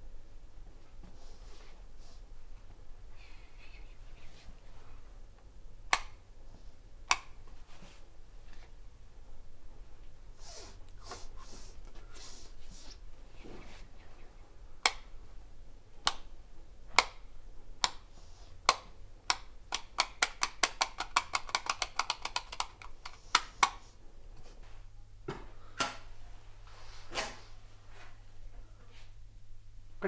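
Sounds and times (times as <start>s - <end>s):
wall switch clicking: 5.9s - 6.2s, 7.0s - 7.4s, 14.8s - 15.1s, 17.8s - 23.8s.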